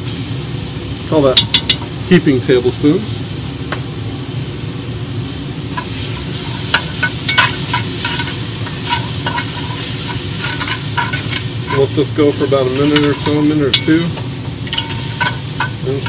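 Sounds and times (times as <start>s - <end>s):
onions sizzling in a pot: 0.0s - 16.0s
spatula scraping a pot: 5.8s - 16.0s.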